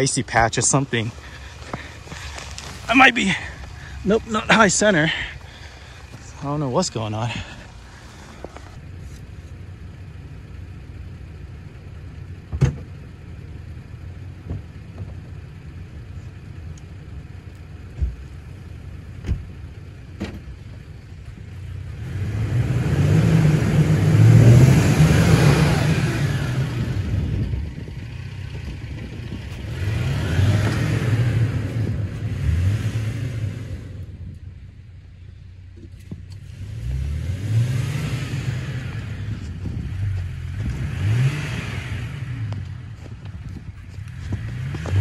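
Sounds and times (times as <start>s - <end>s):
pickup truck engine idling: 0.0s - 21.7s
tyres spinning in snow: 0.0s - 34.2s, 36.5s - 45.0s
engine revving: 21.7s - 34.2s, 36.3s - 45.0s.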